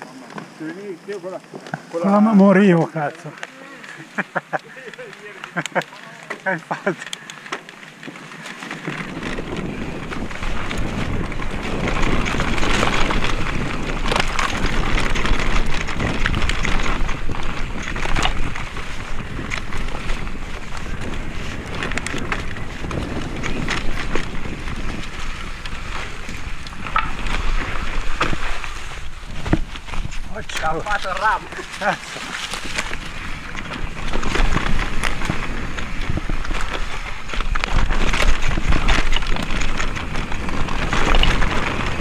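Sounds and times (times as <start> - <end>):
bike knocking and rattling: 4.7 - 42.0
wind buffeting microphone: 8.6 - 42.0.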